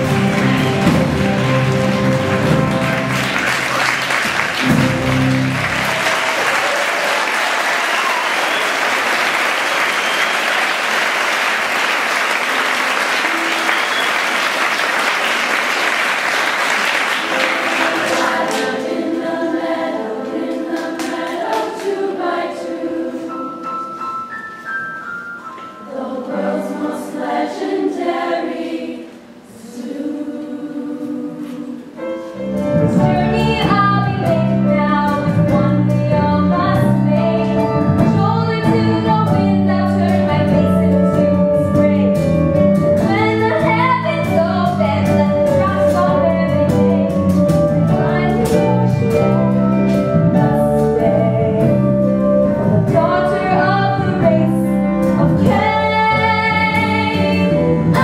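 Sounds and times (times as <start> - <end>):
band with steady bass line: 0.0 - 6.1, 32.5 - 58.0
choir singing: 0.0 - 10.2, 16.6 - 23.9, 25.6 - 32.3.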